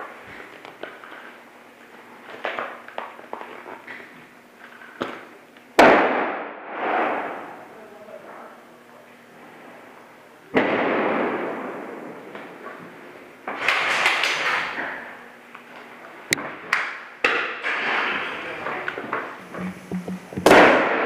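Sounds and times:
sharp cracks: 5.8s - 7.6s, 10.6s - 12.5s, 13.4s - 15.0s, 20.3s - 21.0s.

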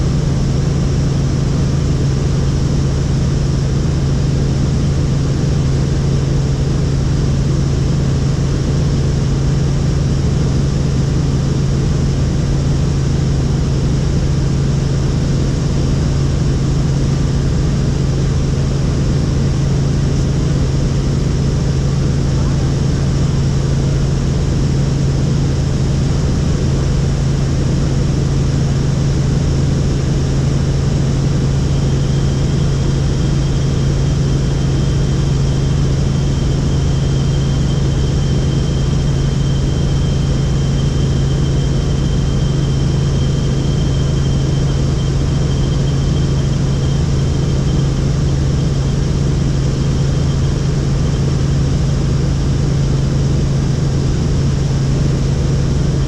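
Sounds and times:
faint high whine: 0.0s - 56.0s
helicopter rotors and engine drone: 0.0s - 56.0s.

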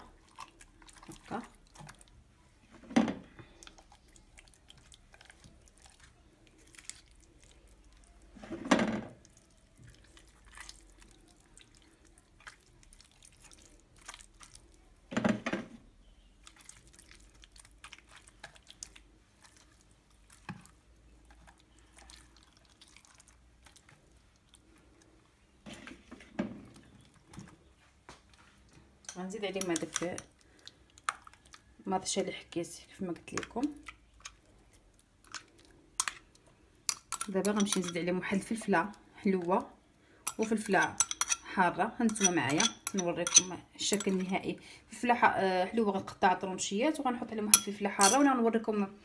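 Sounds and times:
hands squelching marinade on fish: 9.3s - 14.7s, 16.4s - 24.7s.

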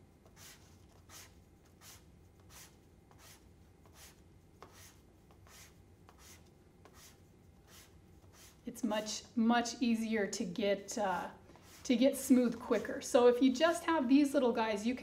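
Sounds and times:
sandpaper rasping: 0.4s - 9.1s.

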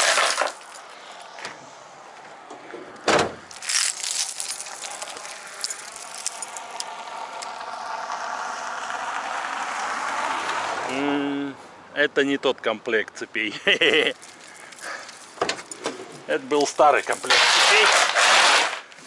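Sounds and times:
car approaching on road: 0.8s - 12.0s
loud thump: 3.0s - 3.4s
snow chain links clinking: 3.5s - 6.8s.

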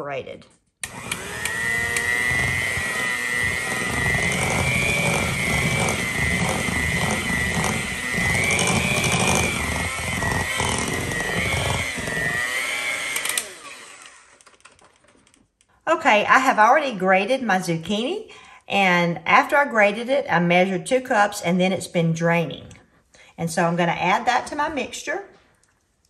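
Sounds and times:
electric hand mixer whining: 0.8s - 14.4s.

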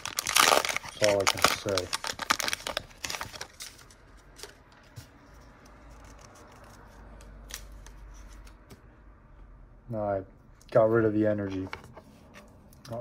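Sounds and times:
foil wrapper crinkling and tearing: 0.0s - 3.9s.

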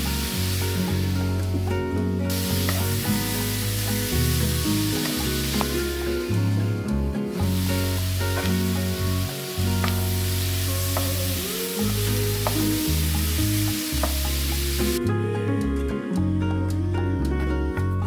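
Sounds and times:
asparagus sizzling in a pan: 0.0s - 15.0s
background music with low notes: 0.0s - 18.0s.

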